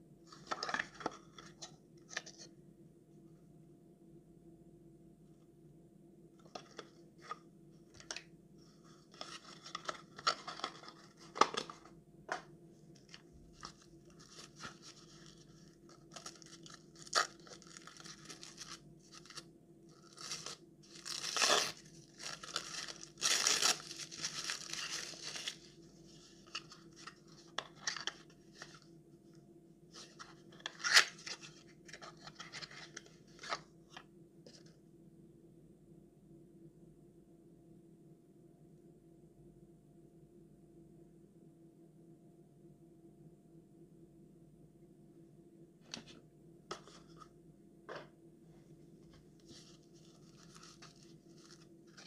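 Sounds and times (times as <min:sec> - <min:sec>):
cardboard rustling and scraping: 0:08.8 - 0:28.8, 0:49.0 - 0:52.0.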